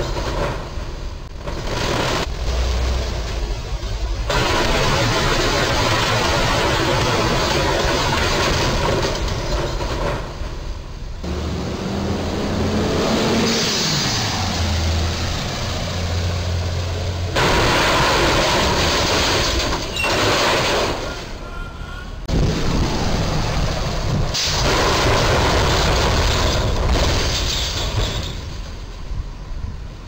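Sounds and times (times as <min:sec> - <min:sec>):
road traffic noise: 0:00.0 - 0:30.0
truck engines: 0:00.0 - 0:30.0
low engine drone: 0:11.1 - 0:19.4, 0:21.4 - 0:27.0.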